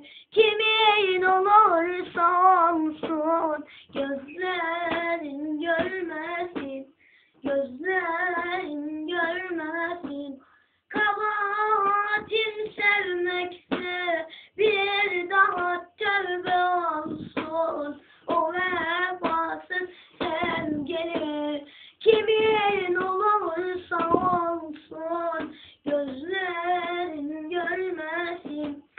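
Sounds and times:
boy singing solo: 11.0 - 28.9.

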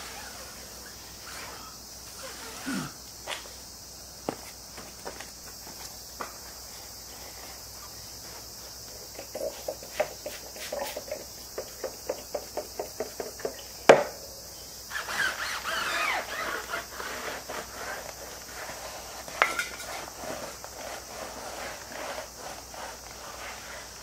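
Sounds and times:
brush scrubbing rubber: 15.0 - 24.0.

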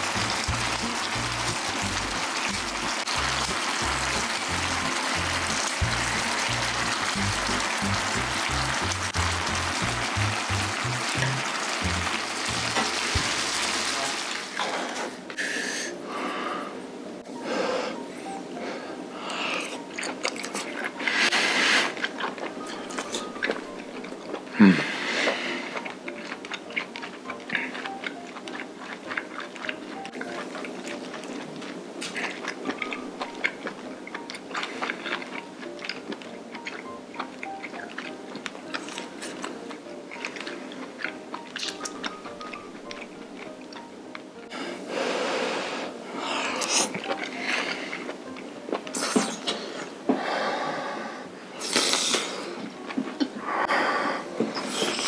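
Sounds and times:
food sizzling in a pan: 0.0 - 15.1
background music: 0.0 - 55.0.

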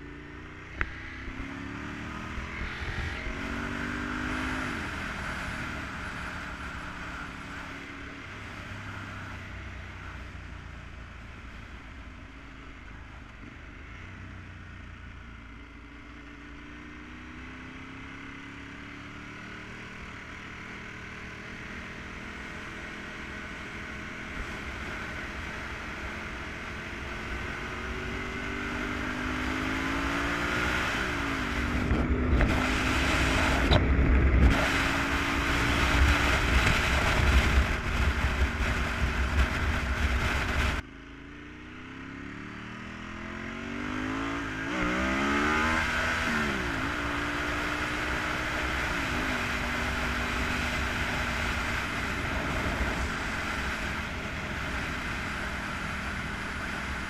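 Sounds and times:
motorcycle engine accelerating: 0.0 - 57.0
wind noise: 26.9 - 40.8, 44.2 - 57.0.

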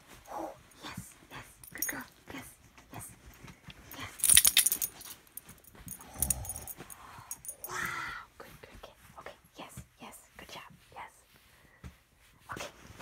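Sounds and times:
bedding rustling: 0.0 - 7.7
collar jingling: 1.6 - 2.2, 3.8 - 7.8.

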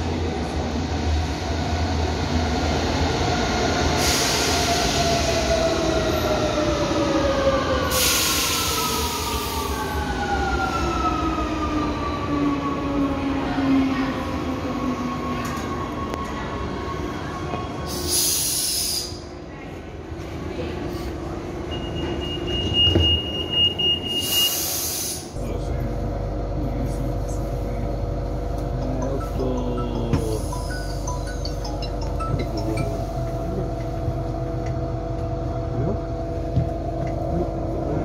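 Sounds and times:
train rumble: 24.2 - 38.0.

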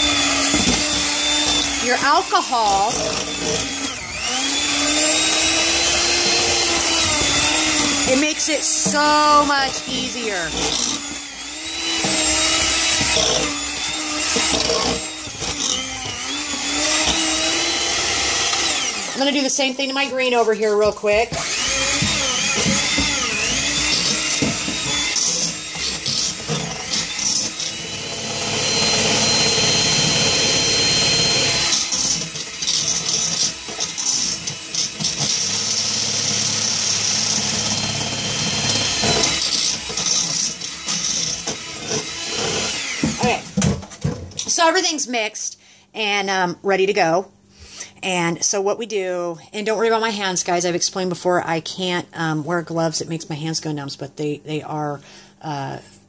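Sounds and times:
beaters churning gritty mix: 0.0 - 43.6
electric hand mixer whine: 0.0 - 43.7.

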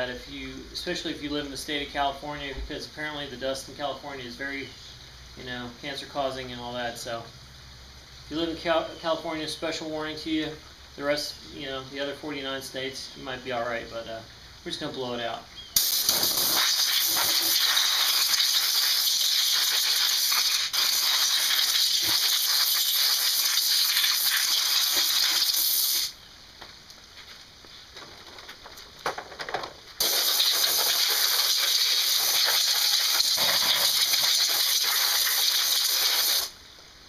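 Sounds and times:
air blow gun hissing: 15.8 - 26.2, 30.0 - 36.6.

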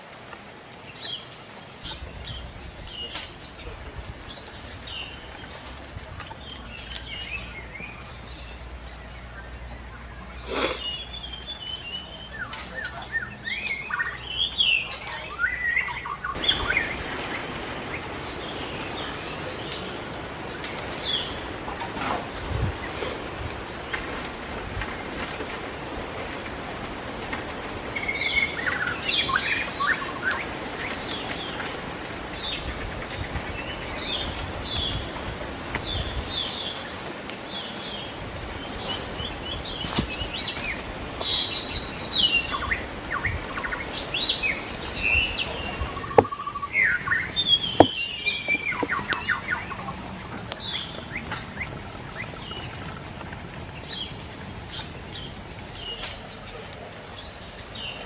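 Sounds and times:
steady background hiss: 0.0 - 58.0
small birds chirping: 0.7 - 25.4, 32.3 - 58.0
sharp snaps: 6.4 - 7.2.

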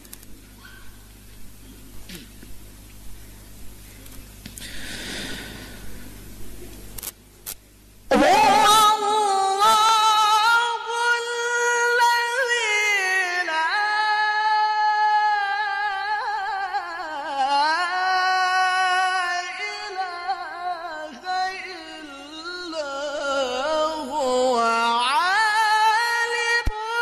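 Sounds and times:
man reciting melodically: 8.1 - 27.0.

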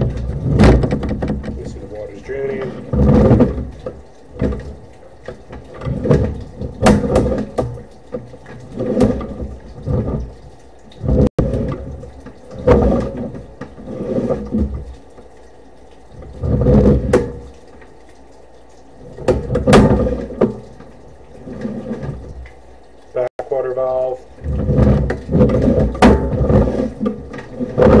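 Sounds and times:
cable rubbing and knocking: 0.0 - 7.7, 24.4 - 28.0.

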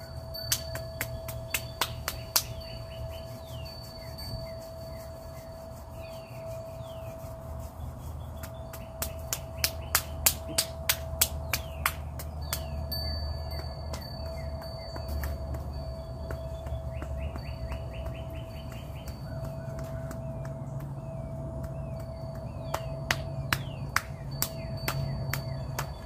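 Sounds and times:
palm slapping back of hand: 0.5 - 2.7, 8.4 - 12.8, 16.3 - 26.0.

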